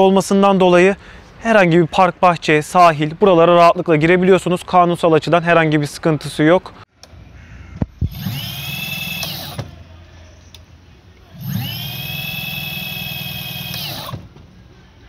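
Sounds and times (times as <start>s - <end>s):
small electric motor whirring: 8.0s - 9.7s, 11.3s - 14.2s.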